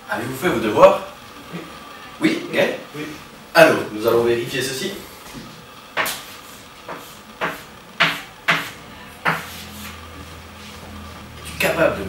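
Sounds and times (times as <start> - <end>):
chalk strokes on blackboard: 6.0 - 11.2.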